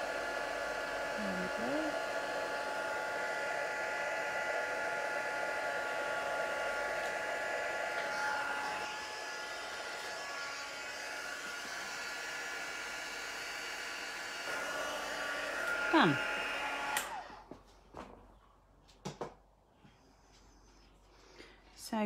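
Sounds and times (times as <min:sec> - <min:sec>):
heat gun blowing air: 0:00.0 - 0:17.4.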